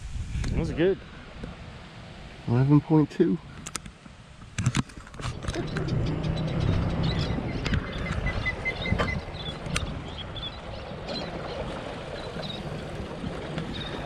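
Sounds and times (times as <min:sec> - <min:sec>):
boat motor rumbling: 0:05.1 - 0:14.0.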